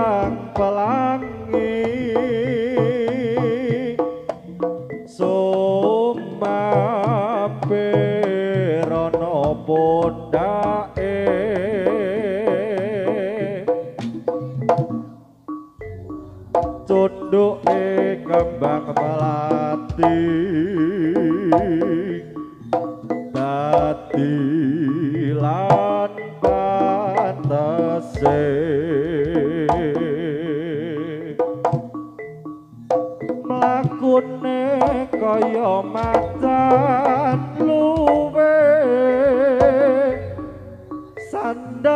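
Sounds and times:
drum and gamelan percussion: 0.0 - 41.9
vibrato melody with long notes: 0.0 - 41.9.

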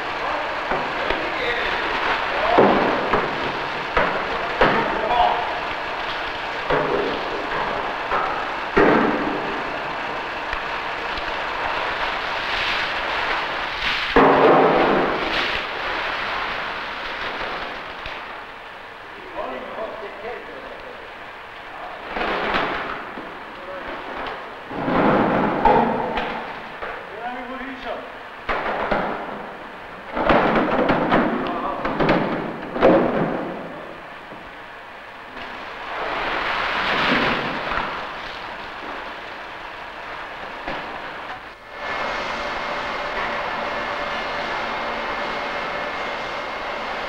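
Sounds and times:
factory machinery rushing: 35.2 - 47.0
machinery rushing noise: 41.6 - 47.0.

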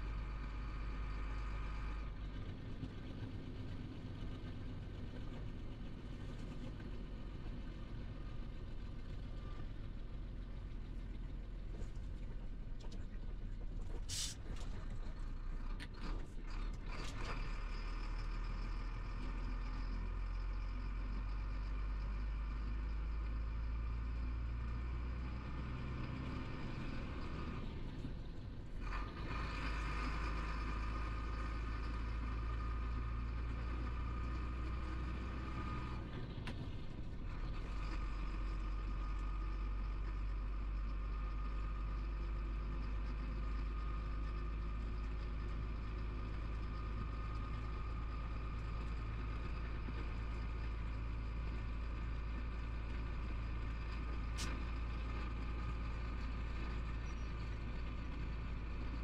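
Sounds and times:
truck diesel engine from cab: 0.0 - 59.0
short air hiss: 14.1 - 14.4.

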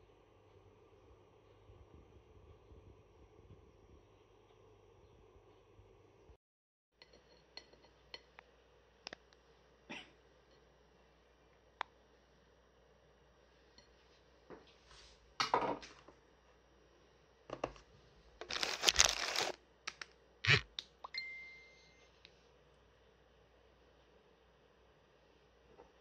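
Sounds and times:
rustling: 18.4 - 19.6
brief ringing tone: 21.1 - 22.1.

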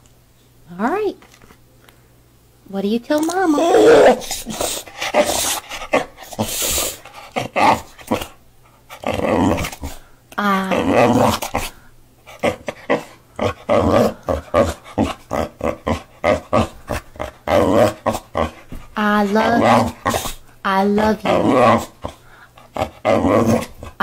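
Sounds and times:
dog wavering moan: 3.5 - 5.3, 9.0 - 11.8, 12.4 - 24.0
dog grumbling vocalizations: 9.0 - 20.4, 21.0 - 24.0.

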